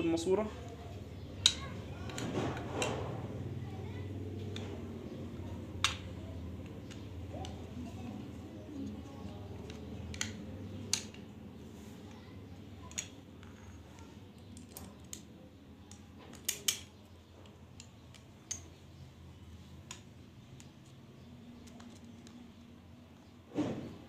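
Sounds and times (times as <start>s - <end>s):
metal clicks of rifle parts: 15.9s - 16.9s.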